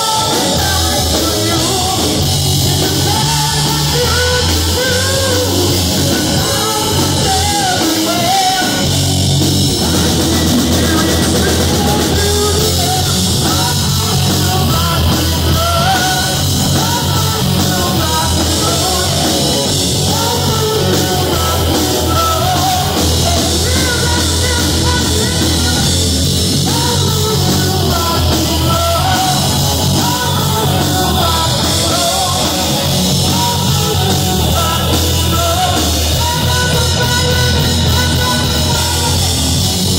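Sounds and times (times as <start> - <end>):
drum kit: 0.0 - 39.9
electric guitars: 0.0 - 39.9
man singing: 0.0 - 39.9.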